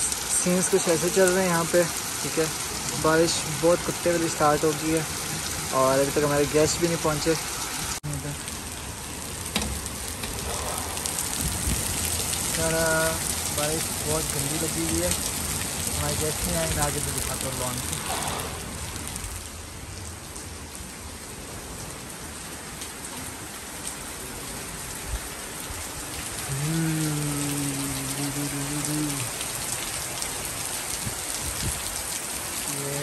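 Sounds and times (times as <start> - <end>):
heavy rain hissing: 0.0 - 33.0
low voice holding a note: 26.5 - 29.3.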